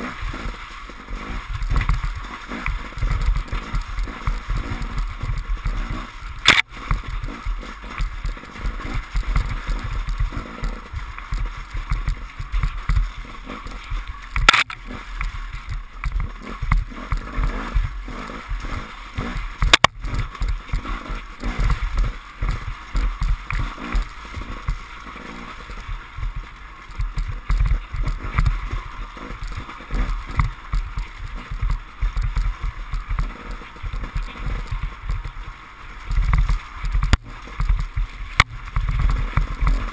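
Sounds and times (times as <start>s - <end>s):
motorcycle engine under load: 0.0s - 39.9s.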